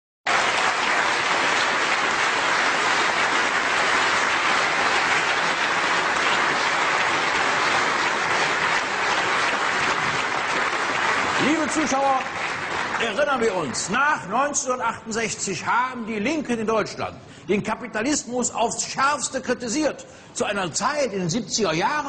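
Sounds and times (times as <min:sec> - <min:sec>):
audience applauding: 0:00.3 - 0:14.2.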